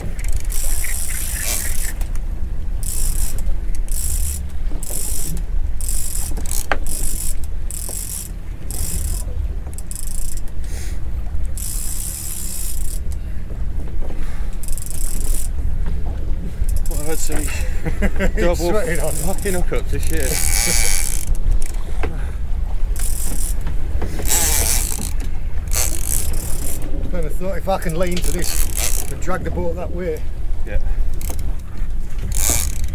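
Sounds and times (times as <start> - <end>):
fishing reel ratcheting: 0.0 - 2.2, 2.8 - 10.5, 11.4 - 13.2, 14.6 - 15.6, 16.7 - 17.7, 18.6 - 21.8, 23.0 - 26.9, 28.0 - 29.3, 31.1 - 32.9.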